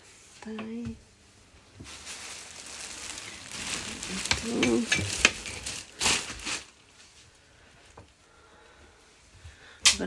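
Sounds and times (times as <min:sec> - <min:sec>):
plastic cover rustling: 0:01.5 - 0:08.0.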